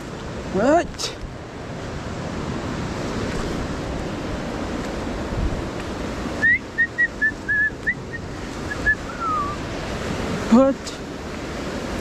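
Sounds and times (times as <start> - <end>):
river rushing: 0.0 - 12.0
whistled notes: 6.4 - 9.6.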